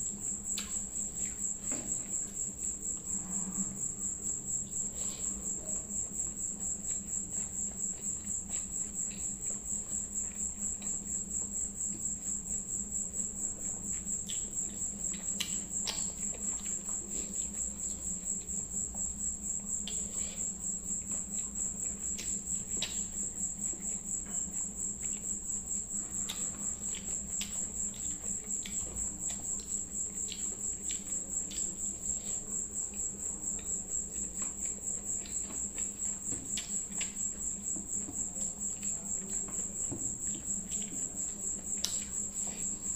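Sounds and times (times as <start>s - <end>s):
chewing: 0.0s - 42.9s
insect trill: 0.0s - 42.9s.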